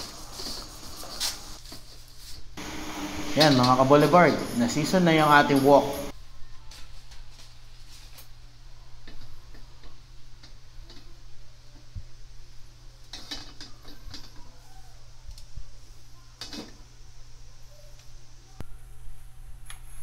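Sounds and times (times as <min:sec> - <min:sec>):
gas burner hum: 0:02.5 - 0:06.2.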